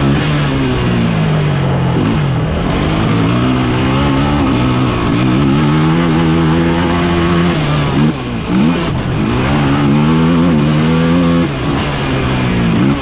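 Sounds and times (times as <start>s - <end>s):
gravel noise: 0.0s - 13.0s
off-road vehicle engine running hard: 0.0s - 13.0s
wind: 0.0s - 13.0s.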